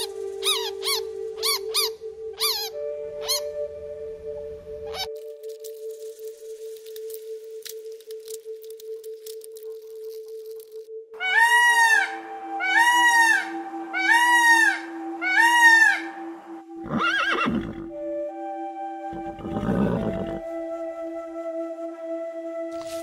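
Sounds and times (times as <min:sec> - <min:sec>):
background music: 0:00.0 - 0:23.0
animal calling: 0:11.2 - 0:16.1, 0:19.2 - 0:20.4.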